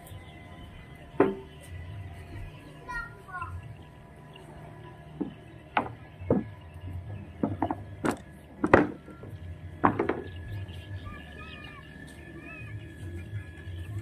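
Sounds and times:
footsteps on wooden planks: 5.1s - 10.6s.

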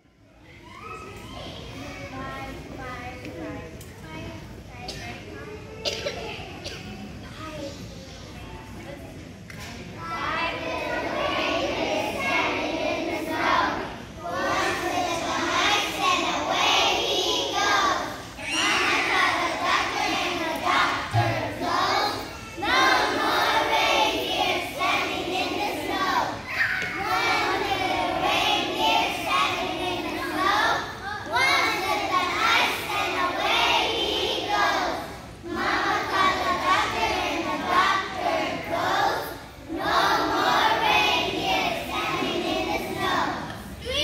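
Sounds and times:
children singing together: 10.0s - 44.0s.

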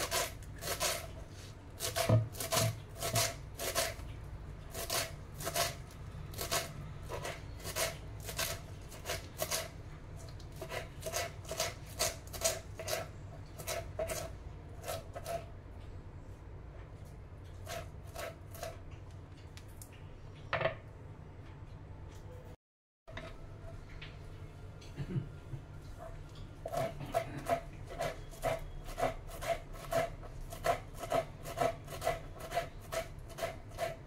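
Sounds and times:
knife chopping on wooden board: 1.8s - 4.0s.

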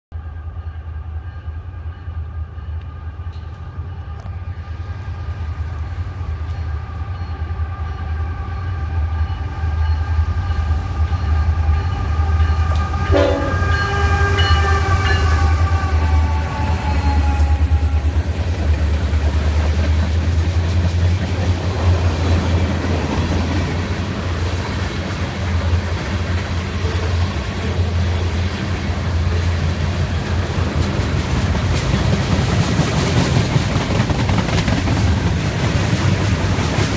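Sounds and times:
train air horn: 6.6s - 18.3s, 26.7s - 28.3s.

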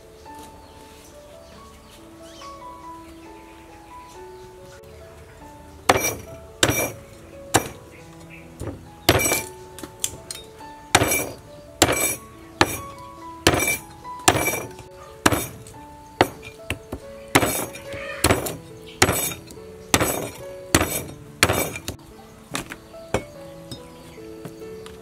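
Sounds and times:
soft background music: 0.0s - 25.0s
cleaver chopping on wooden block: 5.9s - 7.0s, 7.6s - 7.8s, 8.6s - 9.9s, 11.0s - 22.0s.

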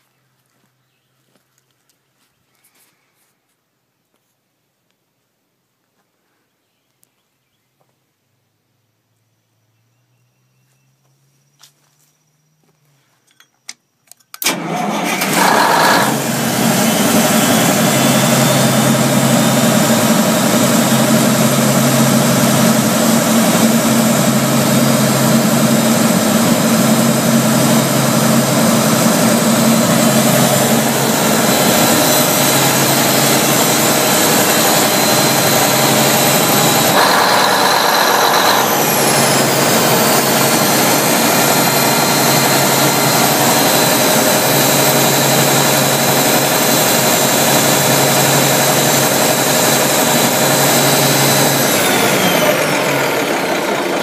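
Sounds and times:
falling high whine: 14.4s - 54.0s
grinder engine running: 14.4s - 54.0s.

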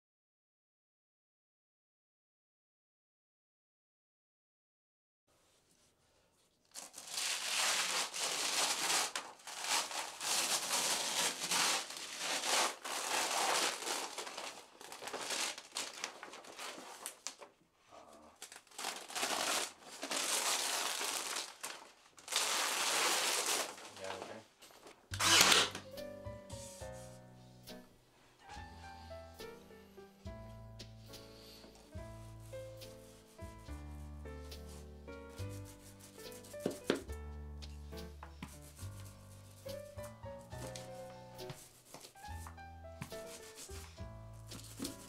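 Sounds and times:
paper crinkling: 6.6s - 17.6s, 18.3s - 25.9s, 38.4s - 45.0s.

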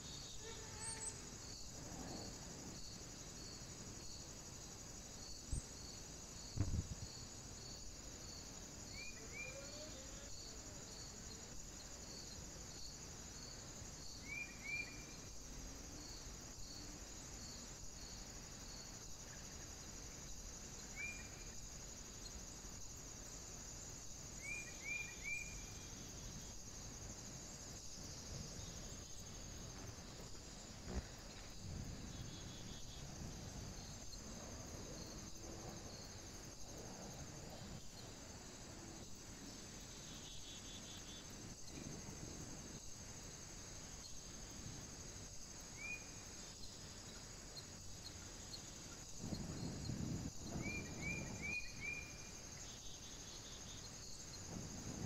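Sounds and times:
insect chorus: 0.0s - 55.0s
regular insect chirp: 0.0s - 55.0s
low thumps: 6.6s - 7.0s.

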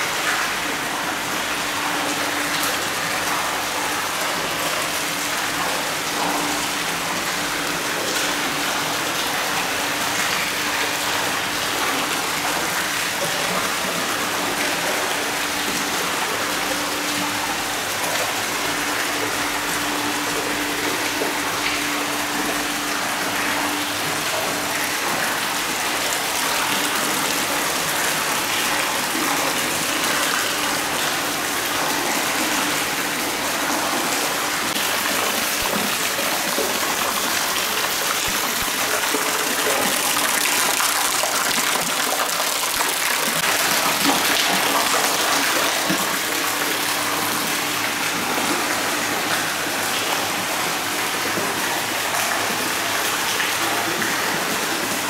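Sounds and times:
water pouring into stone bath: 0.0s - 55.0s.

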